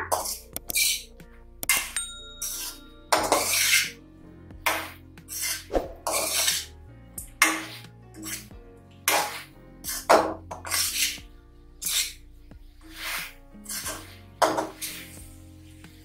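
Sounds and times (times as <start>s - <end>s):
soft background music: 0.0s - 16.0s
metal spatula scraping pan: 2.4s - 4.0s, 4.7s - 6.7s, 7.4s - 8.5s, 9.1s - 11.2s, 11.8s - 12.2s, 12.8s - 15.2s.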